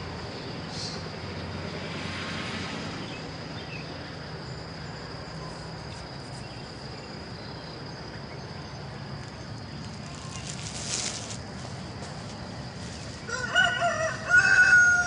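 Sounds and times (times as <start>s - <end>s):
insects trilling: 0.0s - 15.0s
steady low hum: 2.7s - 13.5s.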